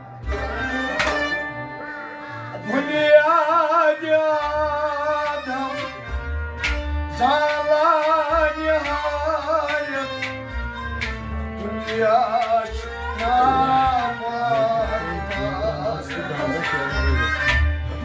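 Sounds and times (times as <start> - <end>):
bowed string instrument: 0.0 - 18.0
man singing with vibrato: 2.5 - 6.1, 7.2 - 10.2, 11.6 - 17.2
drum beating: 6.1 - 18.0.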